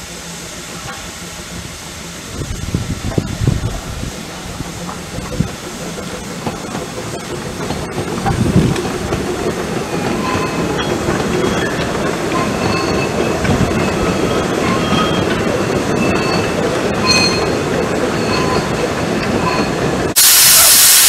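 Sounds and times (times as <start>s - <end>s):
train wheels rumbling over rail joints: 0.1s - 20.2s
wheel squeal: 9.9s - 19.8s.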